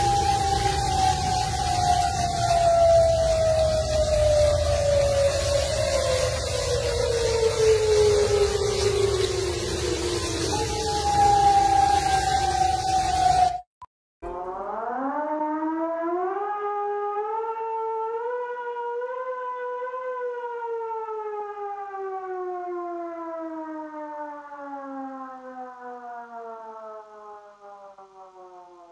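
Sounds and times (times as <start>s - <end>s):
siren wailing: 0.0s - 28.9s.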